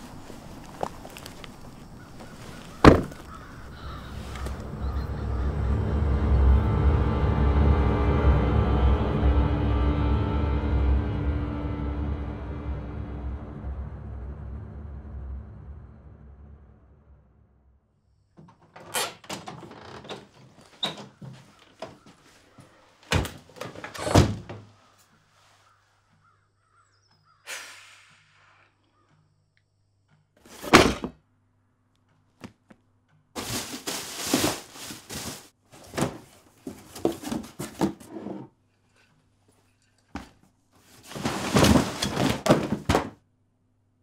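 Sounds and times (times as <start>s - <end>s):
rustling and scraping: 0.0s - 4.7s, 18.5s - 25.8s, 30.4s - 31.1s, 33.4s - 43.2s
thuds of objects set down: 2.8s - 3.3s, 30.5s - 31.2s, 33.4s - 38.1s, 41.0s - 43.2s.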